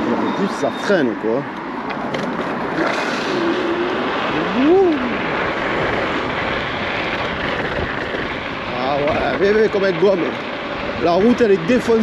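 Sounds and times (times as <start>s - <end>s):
road noise: 0.0s - 12.0s
wind rushing over microphone: 1.5s - 12.0s
hum rising and falling in pitch: 2.6s - 9.5s.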